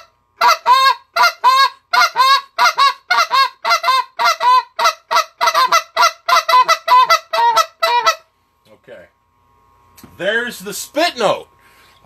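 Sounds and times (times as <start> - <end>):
goose call spit notes: 0.0 - 8.3.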